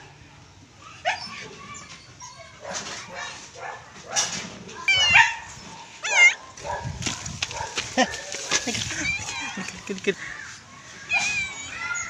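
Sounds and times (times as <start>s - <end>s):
cat meowing: 4.8s - 6.4s, 8.8s - 9.9s, 11.0s - 12.0s
rustling and scuffing of hand on fur: 5.4s - 11.7s.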